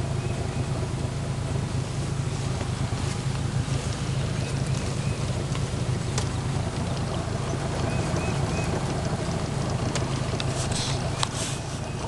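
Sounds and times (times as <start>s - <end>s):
small boat motor droning: 0.0s - 12.0s.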